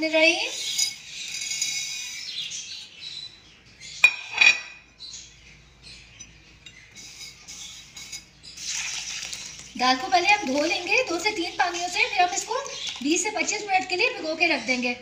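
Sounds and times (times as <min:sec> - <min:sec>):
china and glass clinking: 0:00.6 - 0:02.3
lentils trickling into glass bowl: 0:07.0 - 0:14.2
fingers stirring dry lentils: 0:07.0 - 0:14.9.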